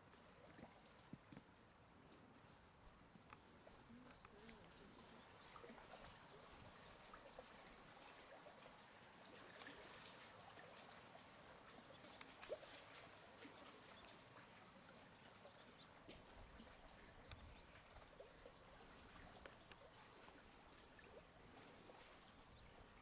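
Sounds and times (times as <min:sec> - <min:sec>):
soft ticks: 0:17.2 - 0:17.6.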